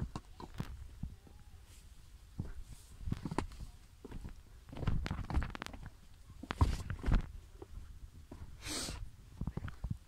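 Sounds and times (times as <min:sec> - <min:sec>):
footsteps on rocky trail: 0:01.8 - 0:08.6.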